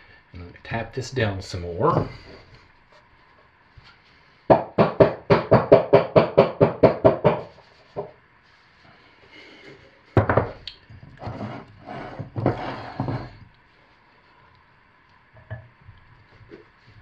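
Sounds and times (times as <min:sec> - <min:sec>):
spatula scraping soap: 0:11.0 - 0:13.5.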